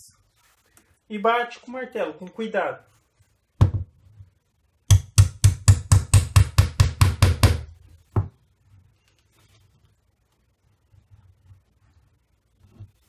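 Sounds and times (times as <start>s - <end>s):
hammer tapping a nail into wood: 4.9s - 7.7s.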